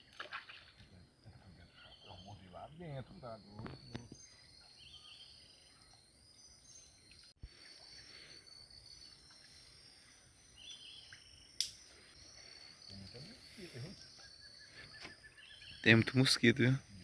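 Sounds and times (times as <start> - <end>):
chorus of insects: 0.0 - 17.0
bird chirps: 1.2 - 17.0
sharp click: 11.6 - 11.8.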